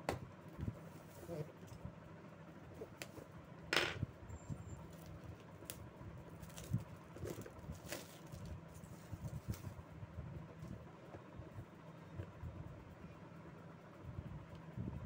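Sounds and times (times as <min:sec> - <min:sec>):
cardboard and plastic rustling: 0:04.8 - 0:09.8.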